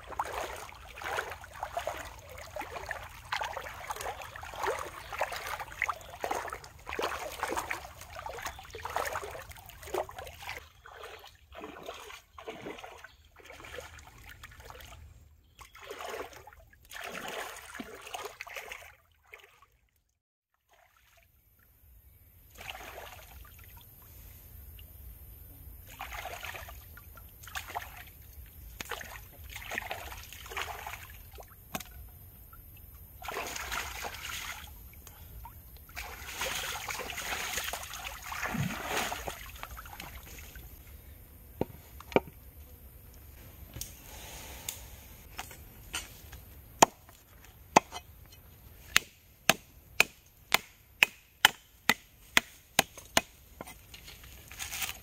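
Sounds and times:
splashing through shallow water: 0.0s - 19.8s, 25.9s - 31.9s, 33.1s - 40.8s.

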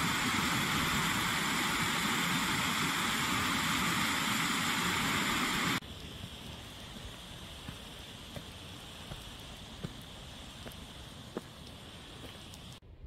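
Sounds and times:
waterfall rushing: 0.0s - 5.8s.

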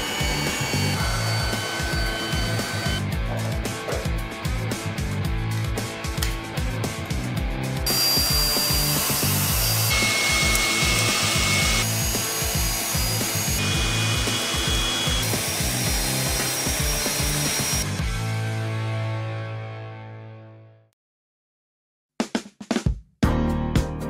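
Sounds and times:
electric blower whining: 0.0s - 3.1s, 7.8s - 18.0s
background music with beat and bass: 1.0s - 7.9s, 22.2s - 24.0s.

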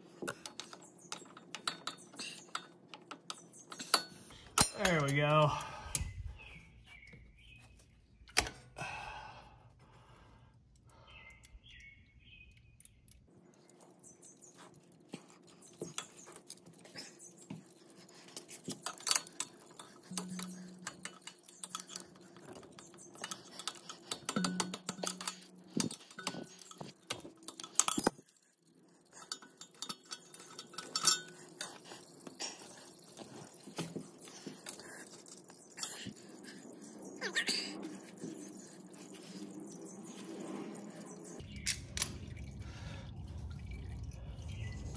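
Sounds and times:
metallic clinks of tools: 18.7s - 31.9s.

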